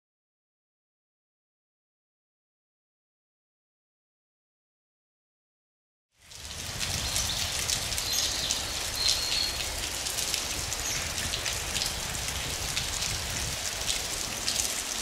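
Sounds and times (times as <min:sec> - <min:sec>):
rain drops pattering: 0:06.2 - 0:15.0.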